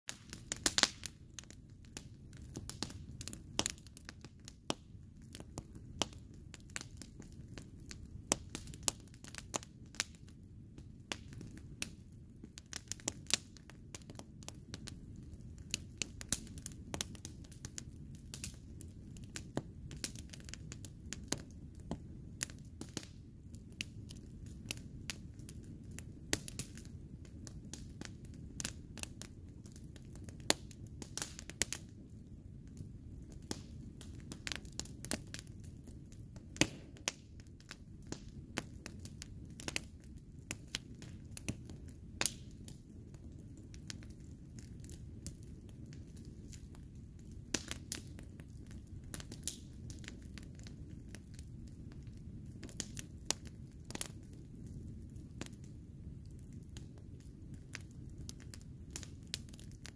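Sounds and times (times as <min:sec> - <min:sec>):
sharp pops from fire: 0:00.1 - 0:10.2, 0:33.4 - 0:35.4, 0:36.5 - 0:42.8, 0:43.7 - 0:54.2
campfire crackling: 0:00.1 - 0:59.9
low rush of flames: 0:00.1 - 0:59.9.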